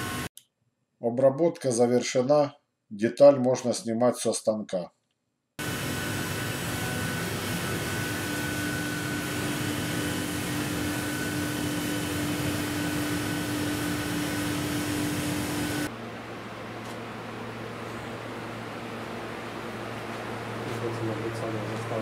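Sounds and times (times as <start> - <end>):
machinery hum: 5.6 - 22.0.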